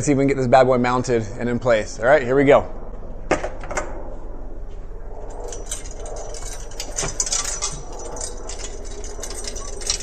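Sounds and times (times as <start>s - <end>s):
low hum: 0.0s - 10.0s
small metal parts clinking: 5.3s - 10.0s.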